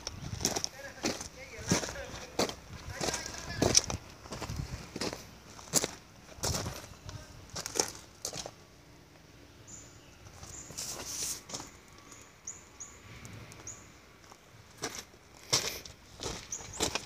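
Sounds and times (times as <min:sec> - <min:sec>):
footsteps on gravel: 0:00.1 - 0:08.6, 0:10.3 - 0:12.2, 0:13.6 - 0:17.0
small bird chirping: 0:09.6 - 0:13.9, 0:16.4 - 0:17.0.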